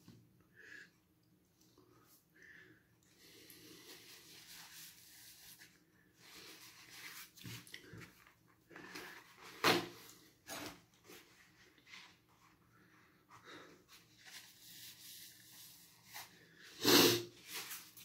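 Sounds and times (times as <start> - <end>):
person sniffing: 16.1 - 17.7.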